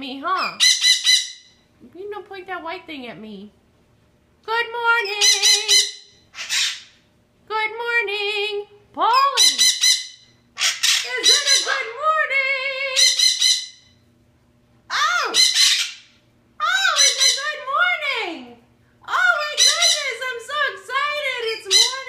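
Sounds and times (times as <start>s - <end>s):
parrot squawking and chattering: 0.3s - 1.6s, 5.0s - 7.0s, 9.1s - 12.2s, 12.8s - 14.0s, 14.9s - 18.0s, 19.1s - 20.4s, 21.2s - 22.0s.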